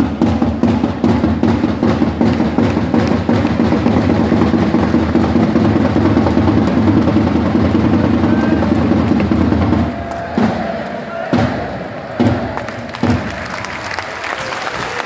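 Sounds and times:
drums: 0:00.0 - 0:15.0
music: 0:00.0 - 0:15.0
crowd applauding and cheering: 0:08.3 - 0:11.4, 0:12.0 - 0:15.0.

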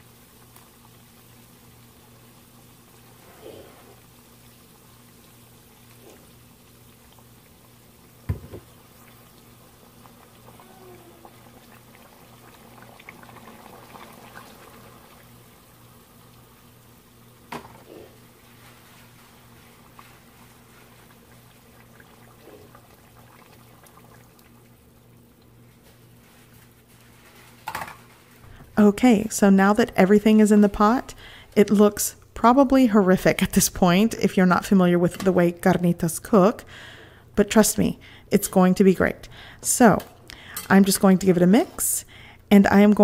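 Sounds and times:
meat bubbling in fat: 0:00.0 - 0:26.9
liquid poured into pot: 0:04.0 - 0:16.3, 0:17.1 - 0:27.8.

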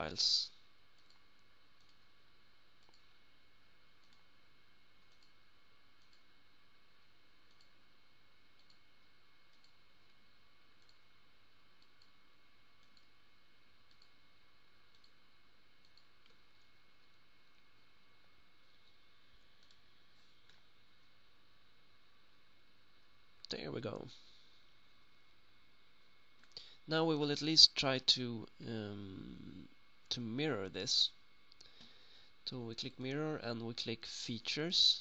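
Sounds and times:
steady background hum: 0:00.0 - 0:35.0
computer mouse clicks: 0:01.0 - 0:02.1, 0:02.8 - 0:03.1, 0:04.0 - 0:04.3, 0:05.0 - 0:05.4, 0:06.0 - 0:06.3, 0:07.4 - 0:07.8, 0:08.5 - 0:08.8, 0:09.5 - 0:09.8, 0:10.8 - 0:11.0, 0:11.8 - 0:12.2, 0:12.8 - 0:13.2, 0:13.8 - 0:14.2, 0:14.9 - 0:15.2, 0:15.8 - 0:17.2, 0:18.8 - 0:19.8.

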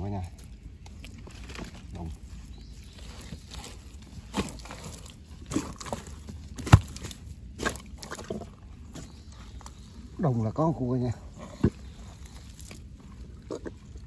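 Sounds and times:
thumps and squelches of wet mud: 0:00.2 - 0:09.8, 0:11.5 - 0:14.0.

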